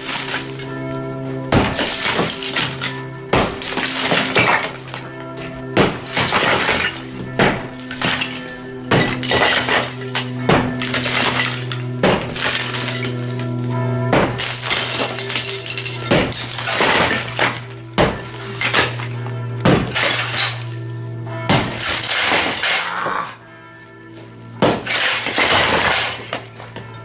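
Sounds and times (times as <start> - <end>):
background music: 0.0 - 27.0
sledgehammer blows on tiles: 1.5 - 5.0, 5.8 - 13.1, 14.1 - 19.1, 19.7 - 20.7, 24.6 - 26.8
rubble crumbling and falling: 1.6 - 13.4, 14.2 - 20.8, 24.6 - 26.9.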